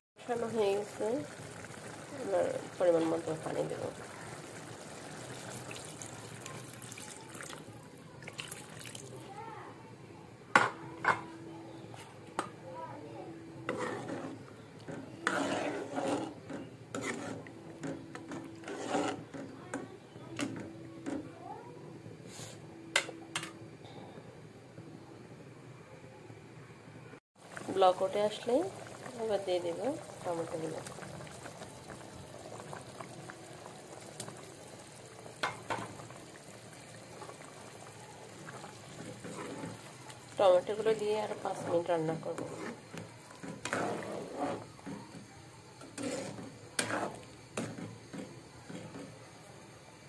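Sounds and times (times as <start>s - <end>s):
pot bubbling at a boil: 0.2s - 9.4s, 13.6s - 21.3s, 27.4s - 50.0s
spoon scraping a metal pan: 13.7s - 19.5s, 41.5s - 45.1s, 45.8s - 49.0s.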